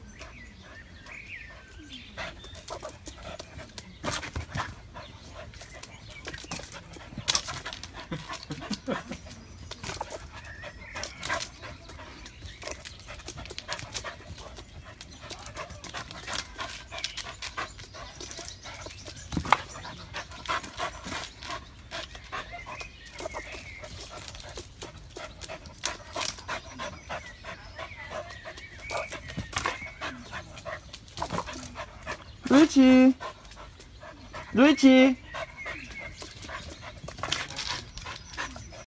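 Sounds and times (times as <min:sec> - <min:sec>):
dog panting and whining: 0:00.0 - 0:38.9.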